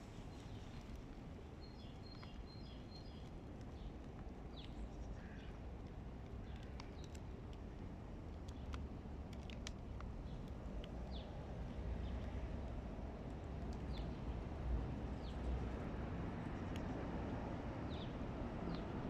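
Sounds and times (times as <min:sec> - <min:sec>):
small birds chirping: 0:00.1 - 0:05.6, 0:09.6 - 0:12.5, 0:13.7 - 0:14.2, 0:17.8 - 0:18.9.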